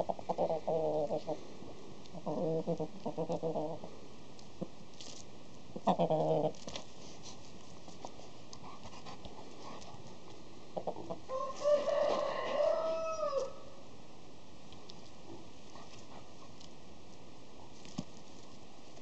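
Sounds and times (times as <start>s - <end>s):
rooster crowing: 11.3s - 13.8s.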